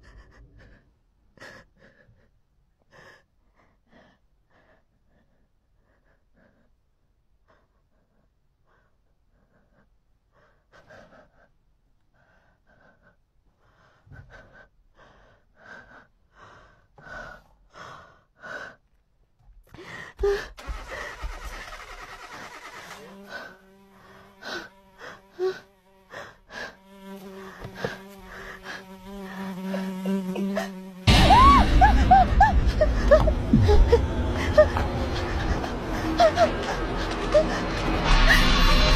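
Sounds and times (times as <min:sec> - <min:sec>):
rapid gasping breaths: 0:00.0 - 0:19.0, 0:19.6 - 0:30.8
steady buzzing drone: 0:26.6 - 0:38.9
sudden loud burst of noise: 0:31.1 - 0:38.9.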